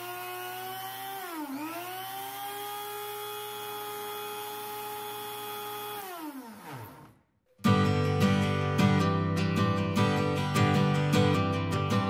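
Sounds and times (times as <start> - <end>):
rotary tool motor whine: 0.0 - 7.2.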